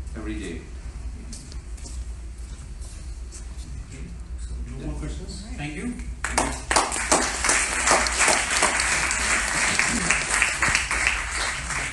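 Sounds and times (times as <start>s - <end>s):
audience applause: 6.3s - 11.9s.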